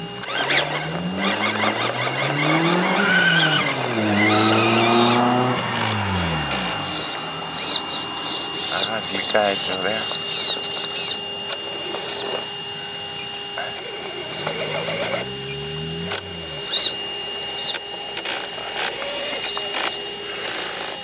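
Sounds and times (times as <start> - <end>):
electric motor whining: 0.0 - 21.0
low drone rising in pitch: 0.2 - 10.2, 12.7 - 17.8.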